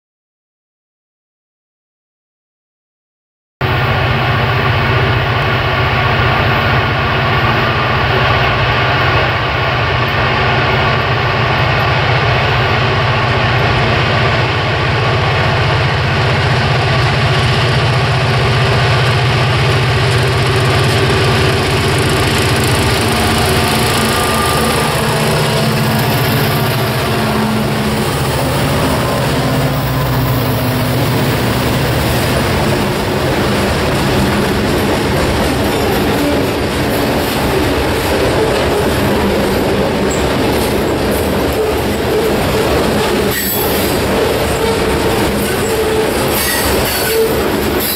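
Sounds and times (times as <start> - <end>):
diesel locomotive engine drone: 3.6 - 47.9
train wheels clattering over rails: 11.5 - 47.9.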